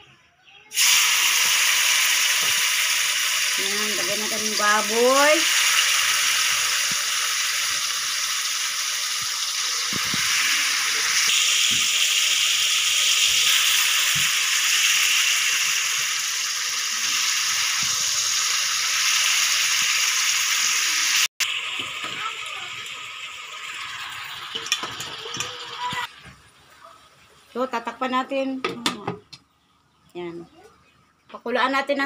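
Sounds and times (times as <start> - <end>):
meat sizzling in hot oil: 0.7 - 26.3.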